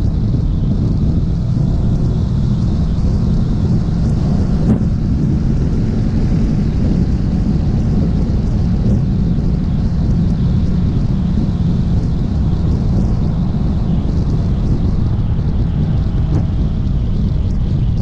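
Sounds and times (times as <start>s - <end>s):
motorcycle cruising: 0.0s - 18.0s
wind rushing over microphone: 0.0s - 18.0s.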